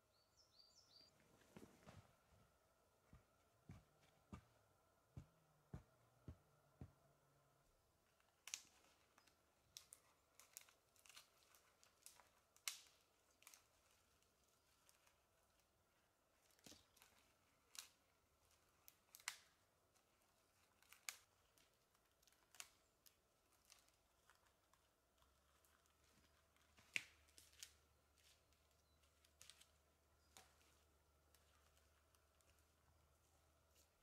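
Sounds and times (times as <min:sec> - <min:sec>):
dry twigs snapping: 0:08.2 - 0:14.1, 0:16.4 - 0:34.0.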